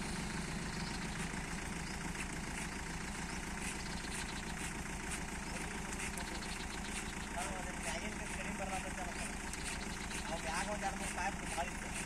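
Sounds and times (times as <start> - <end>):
rig engine running: 0.0 - 12.0
faint irregular ticks: 9.4 - 12.0.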